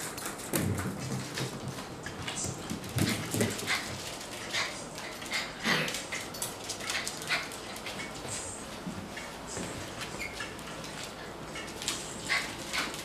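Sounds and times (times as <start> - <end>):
claws clicking on hard floor: 0.0 - 13.0.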